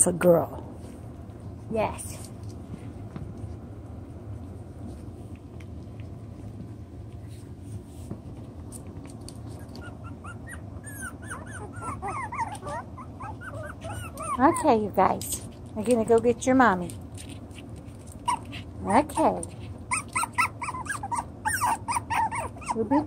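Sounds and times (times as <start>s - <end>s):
low steady hum: 0.0s - 23.0s
puppies whimpering and yipping: 9.4s - 14.8s, 18.1s - 23.0s.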